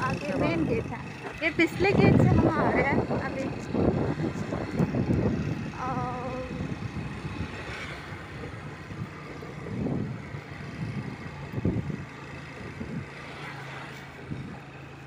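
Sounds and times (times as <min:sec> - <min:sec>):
wind buffeting microphone: 0:00.0 - 0:13.4, 0:14.1 - 0:14.8
motorcycle engine running: 0:00.0 - 0:15.0.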